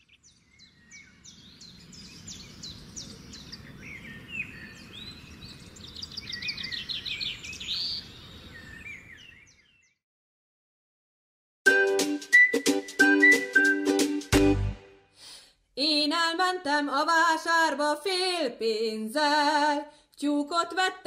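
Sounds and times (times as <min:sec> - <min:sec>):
songbirds chirping: 0:00.0 - 0:10.0.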